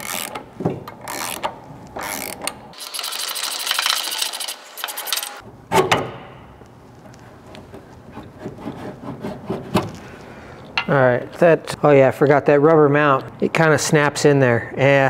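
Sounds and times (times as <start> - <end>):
ratchet wrench clicking: 0.0 - 0.4, 1.0 - 5.4.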